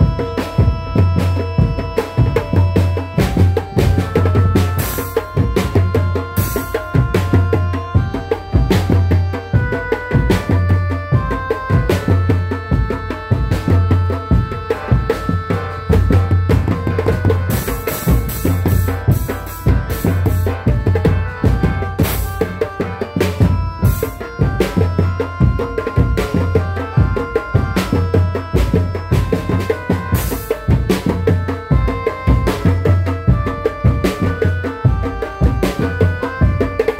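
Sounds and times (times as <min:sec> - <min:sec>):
fast dense drumming: 0:00.0 - 0:36.9
melody of held notes: 0:00.0 - 0:36.9.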